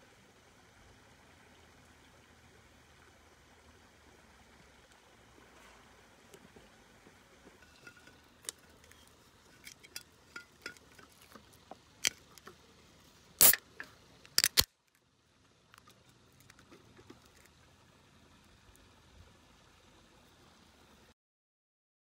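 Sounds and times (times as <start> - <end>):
can seal cracking open: 13.4 - 13.6, 14.2 - 14.7
quick metallic clicks: 13.4 - 14.7.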